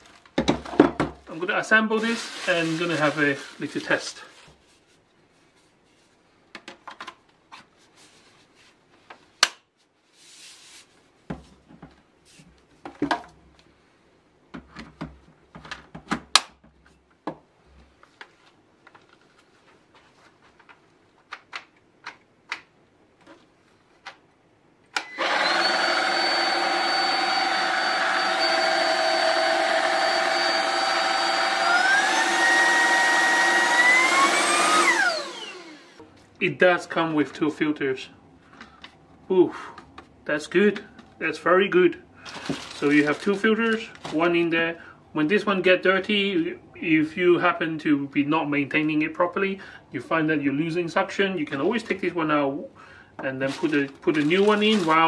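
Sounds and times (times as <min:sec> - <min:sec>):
vacuum motor whine: 0:25.0 - 0:36.0.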